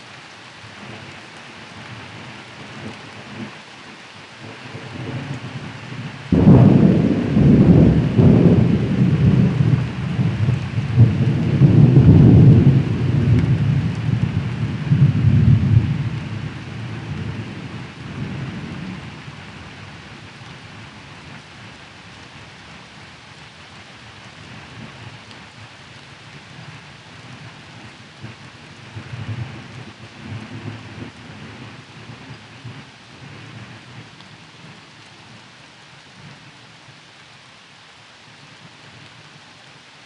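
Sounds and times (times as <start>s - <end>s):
steady rain: 0.0s - 40.0s
rolling thunder: 6.3s - 19.1s.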